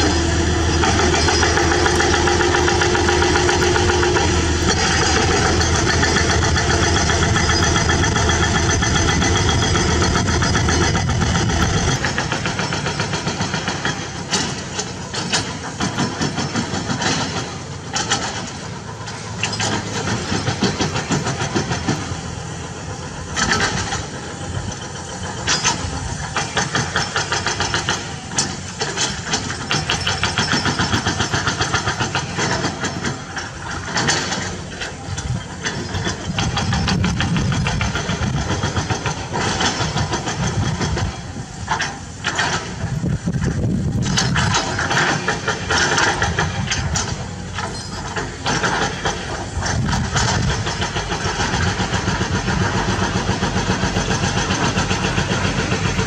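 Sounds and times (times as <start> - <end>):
excavator diesel engines: 0.0 - 56.0
hydraulic rock breaker hammering: 0.0 - 56.0.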